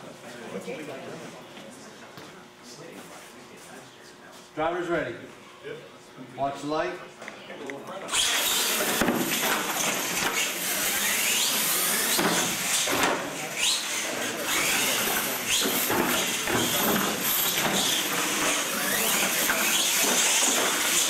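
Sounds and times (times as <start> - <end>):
electric motors whining: 8.1 - 21.0.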